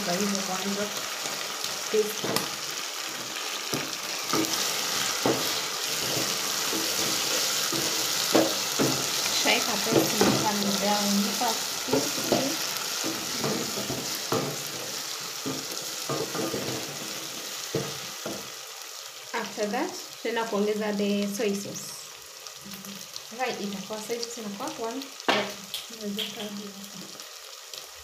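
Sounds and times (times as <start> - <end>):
meat and onions sizzling: 0.0 - 28.0
spoon stirring and knocking pot: 3.7 - 9.2, 11.9 - 16.9.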